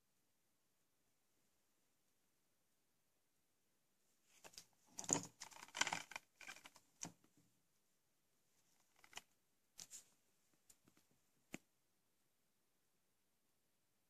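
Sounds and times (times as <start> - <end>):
plastic case rustling and clicking: 4.4 - 7.2, 8.8 - 9.3.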